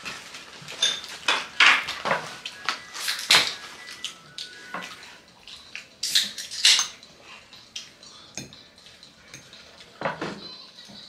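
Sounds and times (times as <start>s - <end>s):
cutlery and tableware clatter: 0.6s - 2.4s, 6.0s - 7.0s.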